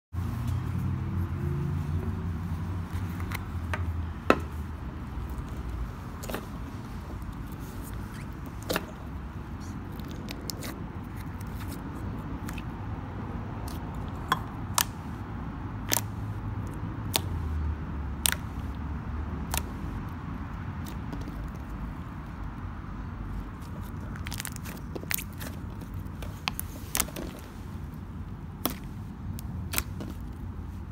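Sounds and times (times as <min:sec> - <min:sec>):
slime squishing: 0:05.1 - 0:12.8, 0:13.6 - 0:15.1, 0:19.4 - 0:22.3, 0:23.3 - 0:30.9.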